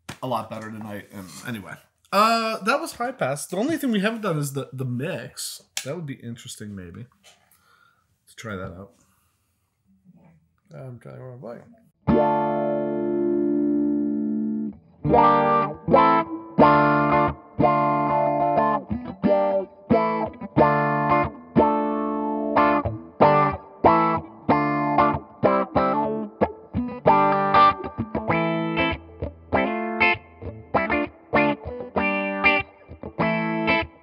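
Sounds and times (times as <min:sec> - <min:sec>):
electric guitar with wah-like filter: 0:11.9 - 0:34.0.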